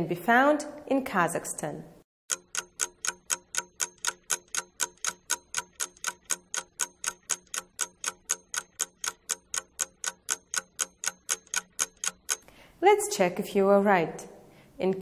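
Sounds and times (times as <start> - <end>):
clock ticking: 2.3 - 12.5.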